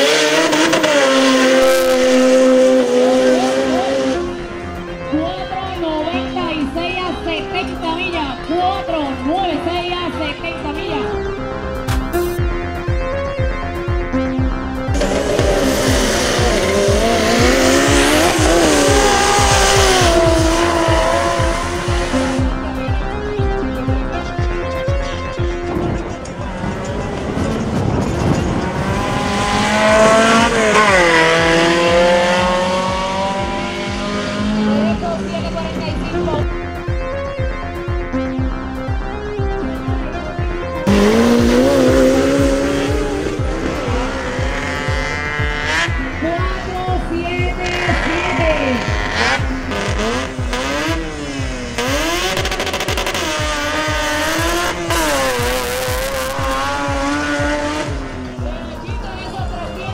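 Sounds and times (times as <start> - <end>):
engine at full throttle: 0.0 - 4.6, 14.8 - 24.5, 25.4 - 36.6, 40.3 - 59.1
background music with kick drum: 0.1 - 59.9.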